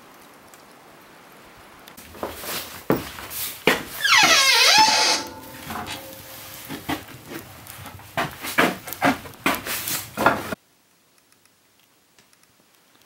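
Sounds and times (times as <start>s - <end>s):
wood fire crackling and popping: 0.0s - 13.0s
faint ticks: 10.8s - 13.0s.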